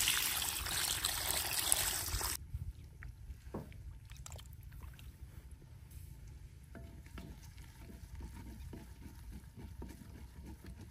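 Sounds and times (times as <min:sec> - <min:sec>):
water pouring and splashing: 0:00.0 - 0:02.4.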